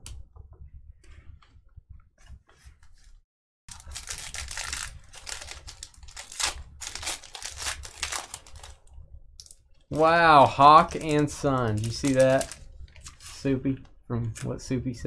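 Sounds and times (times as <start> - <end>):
foil wrapper crinkling and tearing: 3.7 - 8.8, 9.4 - 13.5.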